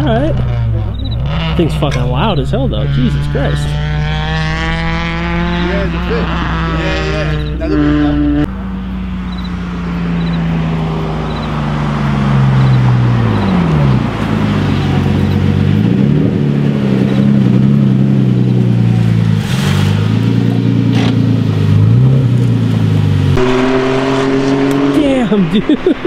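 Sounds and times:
car engine revving past: 0:00.0 - 0:26.0.

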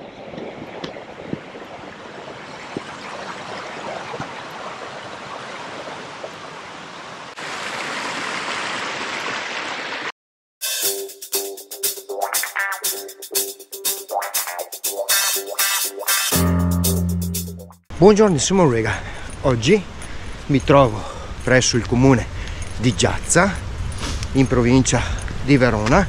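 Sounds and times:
stream rushing: 0:00.0 - 0:10.1
electronic intro music: 0:10.6 - 0:17.8.

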